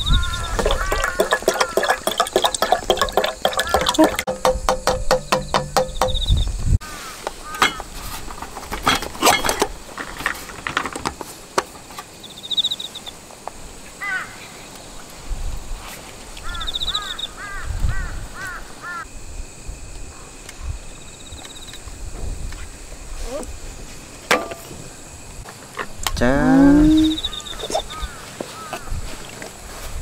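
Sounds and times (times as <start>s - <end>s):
bird chirping: 5.0s - 6.8s, 16.5s - 17.4s
high insect-like trill: 26.0s - 28.2s.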